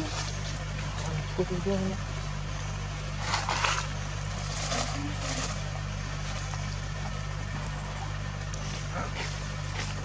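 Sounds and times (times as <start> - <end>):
low mechanical hum: 0.0 - 10.0.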